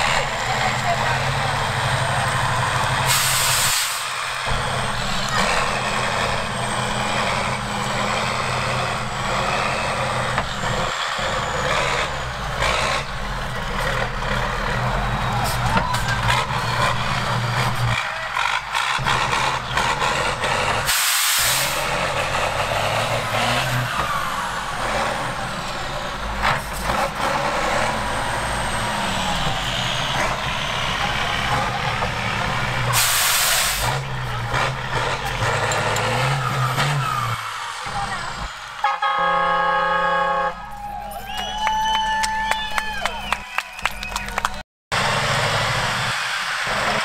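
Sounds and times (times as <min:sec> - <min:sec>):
truck engine revving: 0:00.0 - 0:40.7, 0:42.9 - 0:47.0
hissing air bursts: 0:03.1 - 0:04.1, 0:20.9 - 0:21.9, 0:32.9 - 0:33.9
horn blast: 0:38.8 - 0:40.8.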